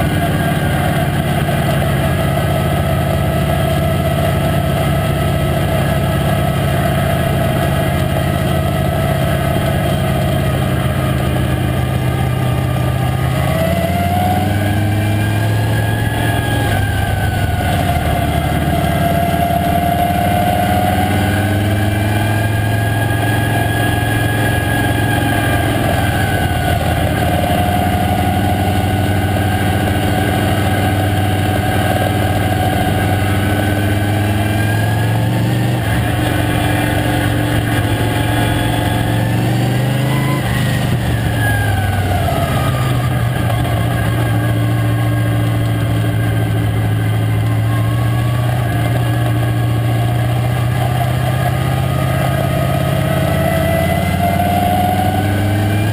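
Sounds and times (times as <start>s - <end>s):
race car engine running hard: 0.0s - 55.9s.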